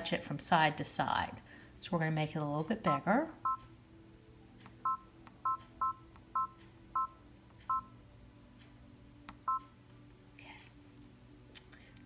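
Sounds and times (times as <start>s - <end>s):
faint steady hum: 0.0s - 12.0s
two-tone key beeps: 4.8s - 7.9s.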